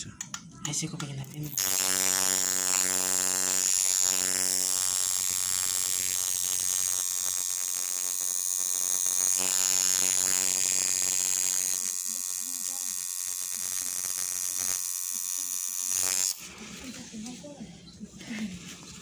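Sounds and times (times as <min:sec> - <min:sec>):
tattoo machine buzzing: 0:01.4 - 0:16.5.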